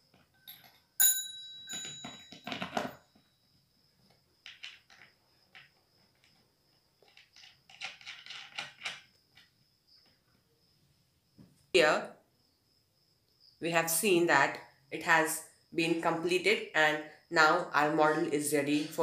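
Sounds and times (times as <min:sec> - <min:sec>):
bell ringing: 0:01.0 - 0:02.6
small parts clicking and rattling: 0:04.4 - 0:06.4, 0:07.0 - 0:09.5.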